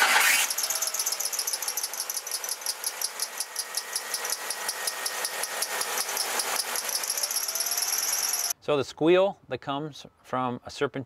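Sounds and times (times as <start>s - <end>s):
drive belt squealing: 0.0s - 8.6s.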